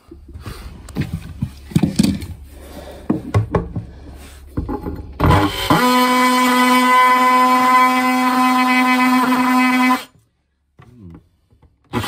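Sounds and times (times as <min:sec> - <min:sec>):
knocks and handling clatter: 0:00.0 - 0:05.3.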